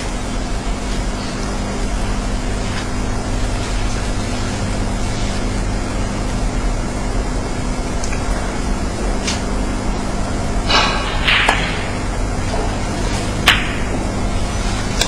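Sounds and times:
steady hiss: 0.0 - 15.0
steady low hum: 0.0 - 15.0.

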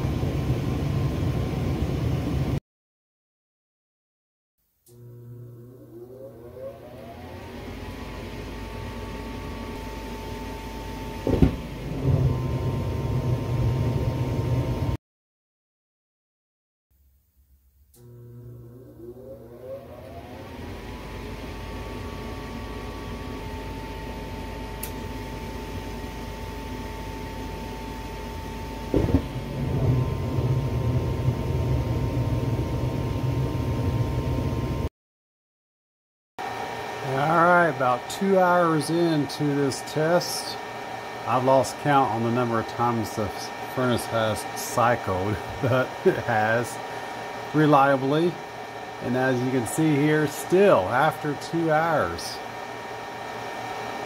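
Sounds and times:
furnace motor whine: 0.0 - 2.6, 4.8 - 15.0, 17.9 - 34.9, 36.4 - 54.0
low burner rumble: 0.0 - 2.6, 4.9 - 15.0, 17.9 - 34.9, 36.5 - 54.0
furnace blower switch click: 24.8 - 25.0.

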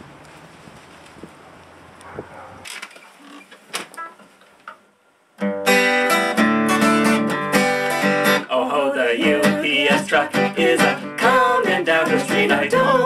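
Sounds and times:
acoustic guitar strumming chords: 5.4 - 13.0.

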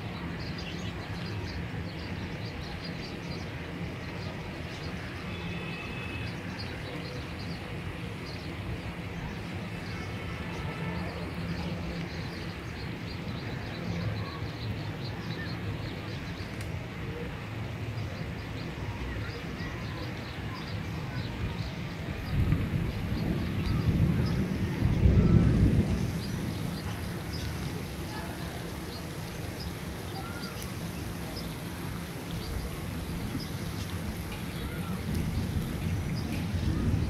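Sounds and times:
even hiss: 18.2 - 37.0.

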